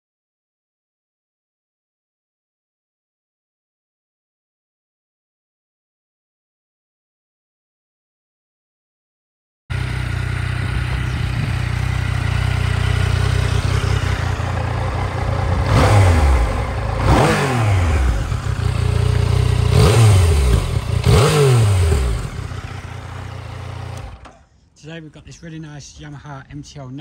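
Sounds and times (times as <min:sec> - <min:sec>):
motorcycle engine idling and revving: 0:09.7 - 0:24.5.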